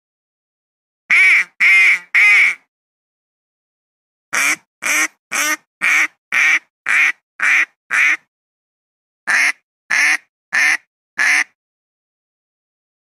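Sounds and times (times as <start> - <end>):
duck call quacking: 1.1 - 2.7, 4.4 - 8.2, 9.3 - 11.6.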